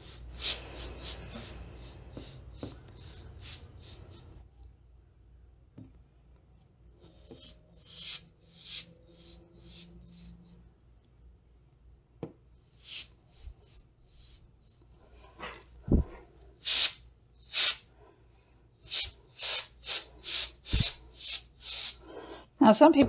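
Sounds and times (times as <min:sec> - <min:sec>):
canned air hissing bursts: 0:00.0 - 0:04.4, 0:07.1 - 0:10.3, 0:12.6 - 0:14.8, 0:16.6 - 0:17.9, 0:18.8 - 0:22.0.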